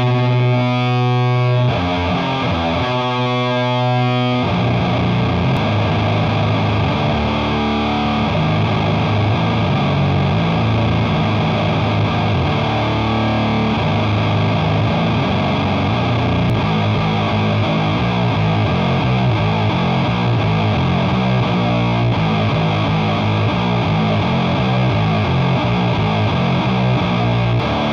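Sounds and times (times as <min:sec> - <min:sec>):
distorted electric guitar riff: 0:00.0 - 0:27.9.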